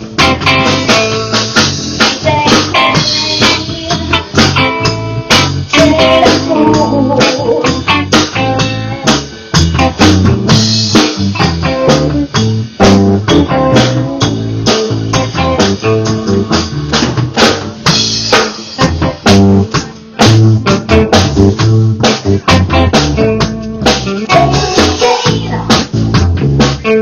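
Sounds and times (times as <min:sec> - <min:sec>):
drum kit hits: 0:00.0 - 0:27.0
electric bass: 0:00.0 - 0:27.0
electric guitar: 0:00.0 - 0:27.0.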